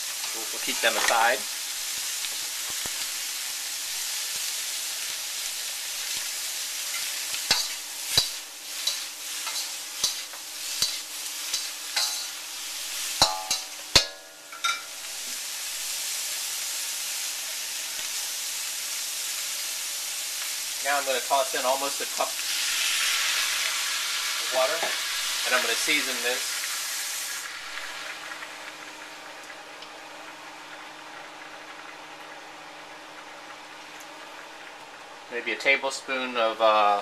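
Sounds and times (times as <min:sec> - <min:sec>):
food sizzling in a wok: 0:00.0 - 0:37.0
spatula scraping a wok: 0:05.5 - 0:15.4.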